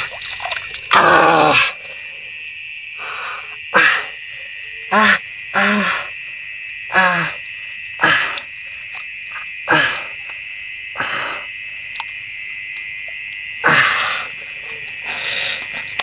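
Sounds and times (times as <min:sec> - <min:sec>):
frogs and insects trilling: 0:00.0 - 0:16.0.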